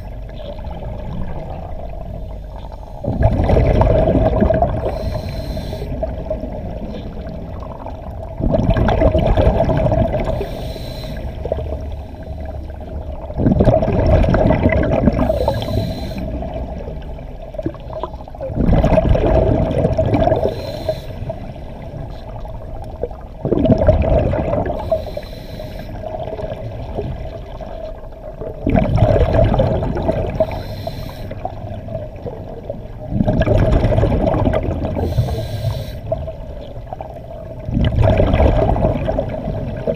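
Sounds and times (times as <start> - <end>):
exhaust bubbles rumbling: 0.0 - 10.6, 11.2 - 25.0, 25.9 - 30.6, 31.4 - 39.9
steady hum: 0.0 - 27.3, 29.7 - 33.8, 34.8 - 39.7
regulator inhale hiss: 4.8 - 6.0, 10.4 - 12.7, 15.2 - 16.4, 20.4 - 21.5, 24.8 - 26.0, 30.4 - 31.5, 35.0 - 36.2.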